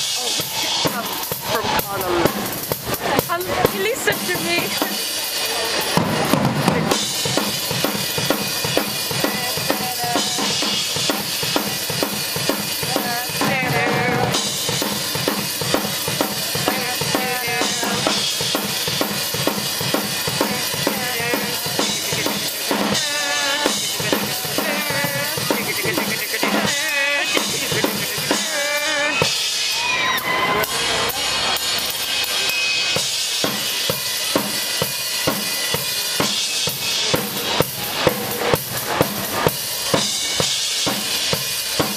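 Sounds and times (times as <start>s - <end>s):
rock drum kit beat: 0.0s - 41.9s
wavering pitched sounds: 20.4s - 29.6s.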